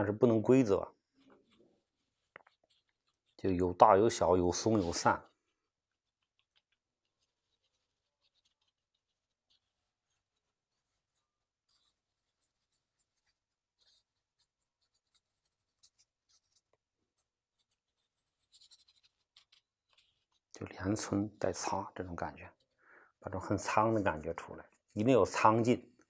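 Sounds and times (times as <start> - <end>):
ink brush scratching on paper: 1.1 - 26.0.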